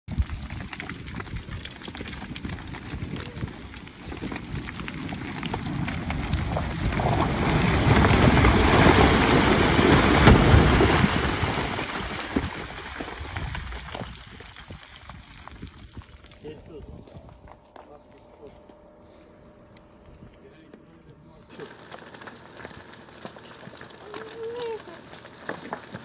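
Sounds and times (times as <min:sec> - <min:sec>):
boulder tumbling down rock slope: 0:00.1 - 0:16.2, 0:21.5 - 0:26.0
stones and gravel clattering: 0:00.1 - 0:18.0, 0:21.5 - 0:26.0.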